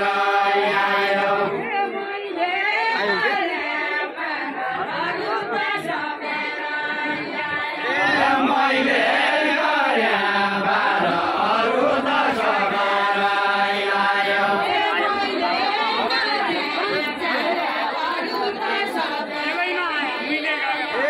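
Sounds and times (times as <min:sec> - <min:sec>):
men singing folk song together: 0:00.0 - 0:01.6, 0:04.6 - 0:19.4.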